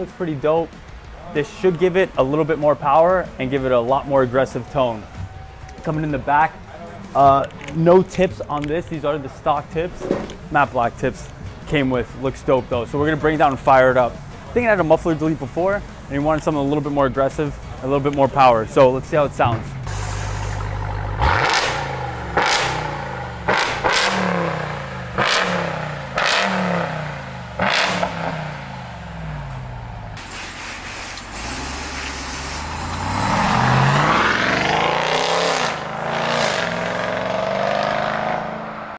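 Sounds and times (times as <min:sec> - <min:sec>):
truck accelerating: 0:00.0 - 0:38.9
truck engine idling: 0:00.8 - 0:35.1
engine revving: 0:19.2 - 0:38.9.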